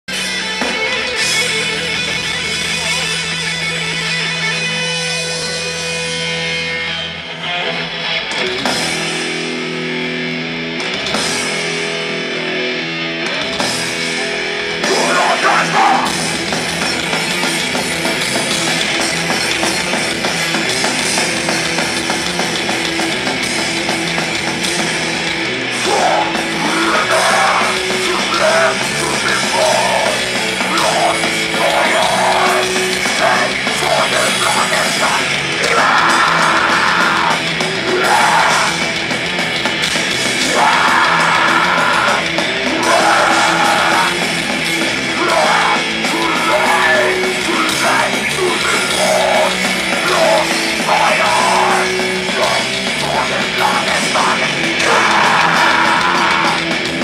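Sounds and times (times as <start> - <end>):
heavy metal band playing live: 0.0 - 57.0
vocalist shouting: 14.8 - 16.2, 25.8 - 38.9, 40.3 - 44.3, 45.0 - 56.7.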